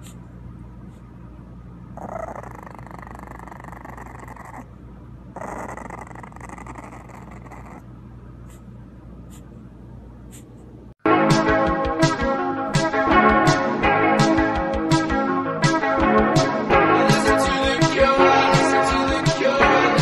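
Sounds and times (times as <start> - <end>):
puppy growling: 1.9 - 8.7.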